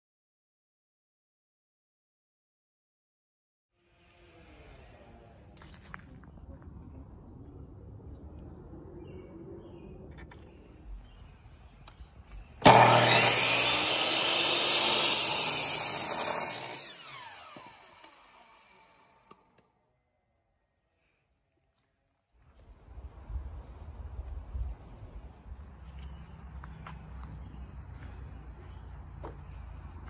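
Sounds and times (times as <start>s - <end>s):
miter saw cutting wood: 12.6s - 19.5s
saw blade winding down whine: 12.6s - 19.6s.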